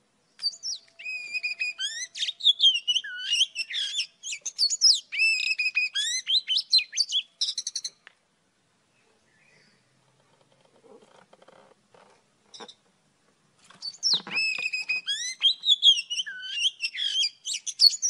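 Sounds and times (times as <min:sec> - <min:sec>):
bird singing whistled notes: 0:00.3 - 0:08.0, 0:13.8 - 0:18.0.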